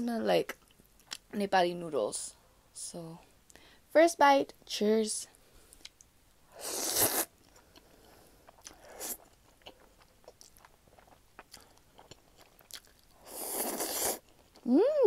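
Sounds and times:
person slurping noodles: 6.6s - 7.3s, 8.7s - 9.3s, 13.2s - 14.2s
soft chewing: 7.1s - 14.7s.

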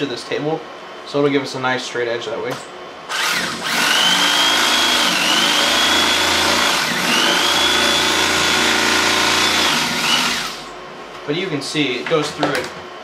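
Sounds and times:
electric carving knife whining: 3.1s - 10.6s.

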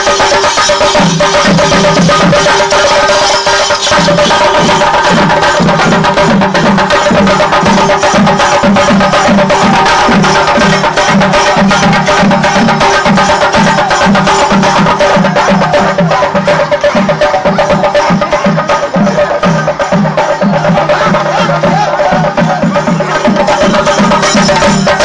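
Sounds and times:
chenda drums in fast roll: 0.0s - 25.0s
steady low drum beat: 0.0s - 25.0s
held tone: 7.7s - 25.0s.

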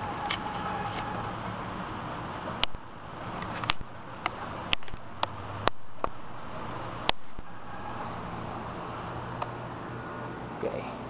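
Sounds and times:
low hum: 0.0s - 11.0s
sharp clicks or knocks: 3.5s - 6.2s.

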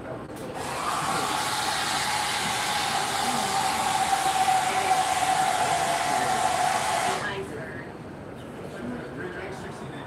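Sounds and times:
machine air rush and whine: 0.5s - 8.2s.

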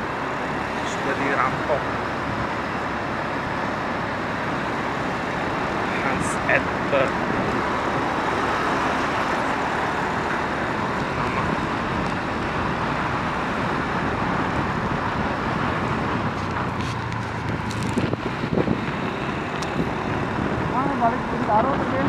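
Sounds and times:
city traffic noise: 0.0s - 22.0s.

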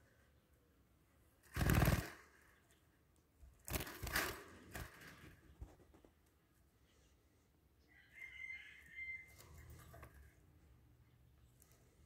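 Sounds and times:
birds flapping wings in cage: 1.4s - 2.3s, 3.6s - 5.8s.

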